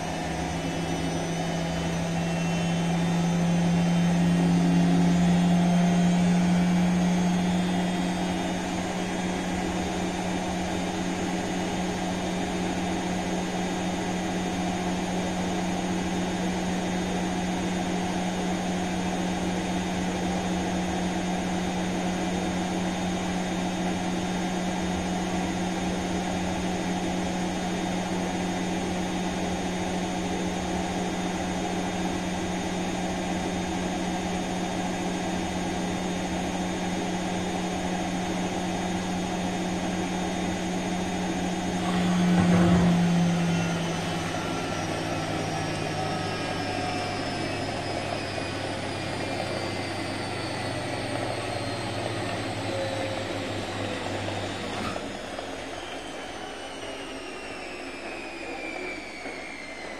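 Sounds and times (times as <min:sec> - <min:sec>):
washing machine drum spinning: 0:39.4 - 0:49.6.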